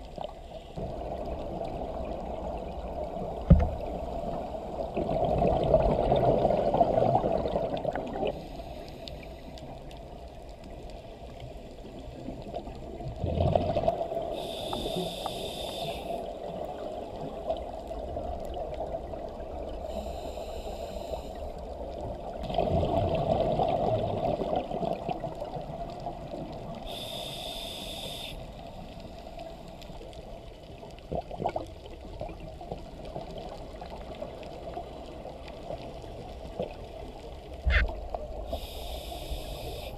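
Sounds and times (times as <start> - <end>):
underwater rumble: 0.0 - 39.9
regulator hissing inhalations: 14.4 - 16.3, 19.9 - 21.4, 26.8 - 28.5, 38.5 - 39.9.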